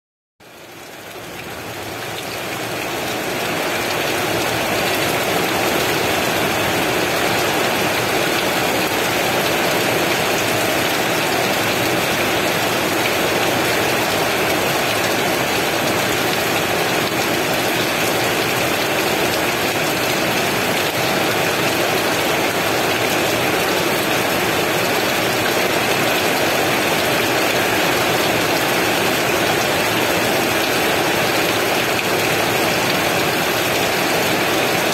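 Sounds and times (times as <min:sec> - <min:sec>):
heavy rain: 0:00.4 - 0:34.9.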